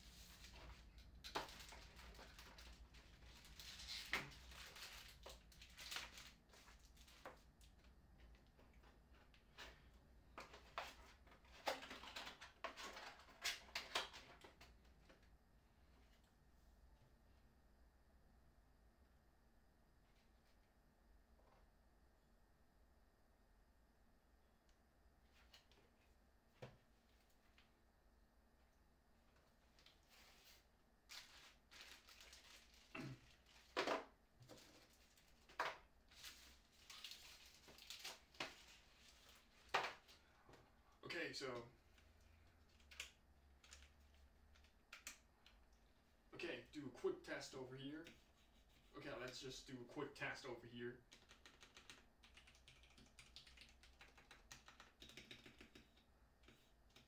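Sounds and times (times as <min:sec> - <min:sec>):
plastic packaging crinkles and clicks: 0:00.4 - 0:08.0, 0:10.4 - 0:14.8, 0:31.1 - 0:40.2, 0:42.5 - 0:45.8
plastic bag crinkling: 0:31.1 - 0:33.8, 0:34.6 - 0:39.6.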